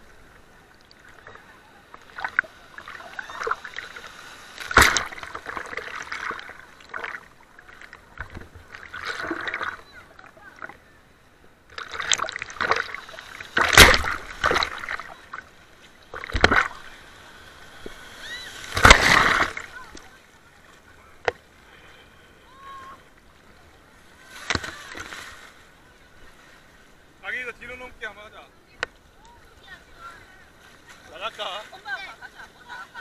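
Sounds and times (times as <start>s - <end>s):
sea waves breaking and splashing: 0.0s - 33.0s
sharp thumps: 13.6s - 14.8s.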